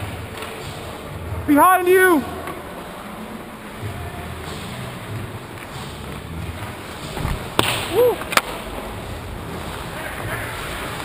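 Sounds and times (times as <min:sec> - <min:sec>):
hockey puck cracking against boards: 0:07.1 - 0:08.8.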